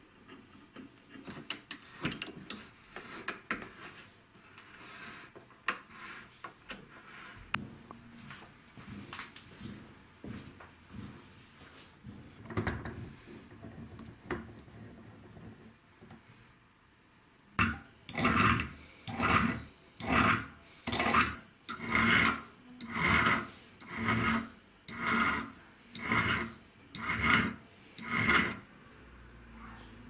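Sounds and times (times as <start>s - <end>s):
metal file scraping metal: 1.7s - 7.5s, 17.6s - 28.7s.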